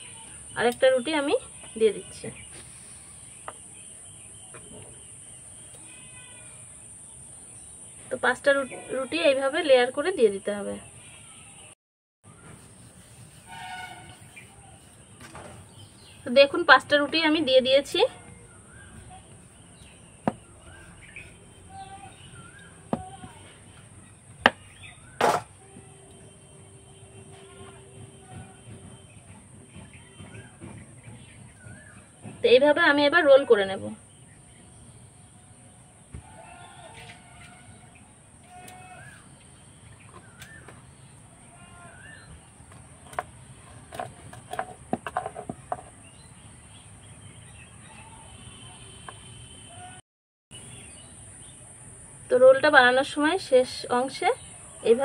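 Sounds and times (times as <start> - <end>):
faint birds chirping: 0.0 - 55.0
rolling pin knocking on board: 20.2 - 20.8.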